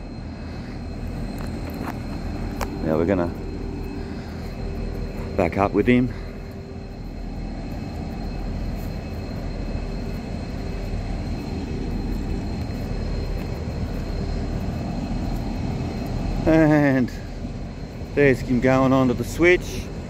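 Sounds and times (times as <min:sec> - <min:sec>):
diesel locomotive engine rumbling: 0:00.0 - 0:20.0.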